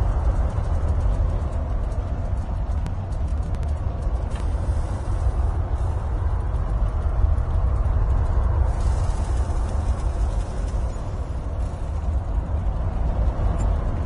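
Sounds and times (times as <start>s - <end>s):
large ship rumbling: 0.0s - 14.0s.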